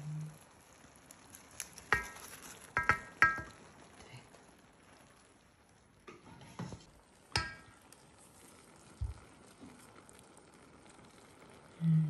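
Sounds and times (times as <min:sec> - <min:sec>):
syrup sizzling on hot pastry: 0:00.0 - 0:12.0
metal spoon clinking on pot: 0:01.9 - 0:03.6, 0:07.4 - 0:07.8.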